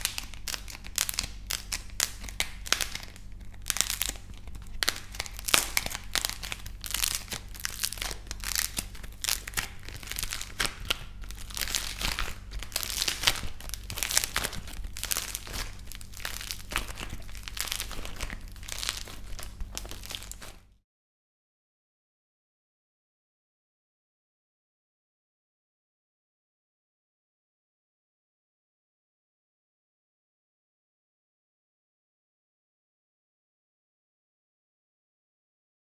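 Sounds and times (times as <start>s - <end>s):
dried clay crackling and crunching: 0.0s - 20.8s.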